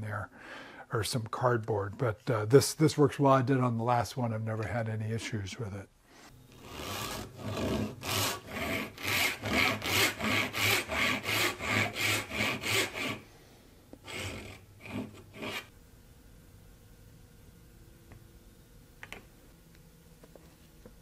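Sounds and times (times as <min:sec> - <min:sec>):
hand saw cutting wood: 0:06.5 - 0:13.2, 0:14.0 - 0:15.7.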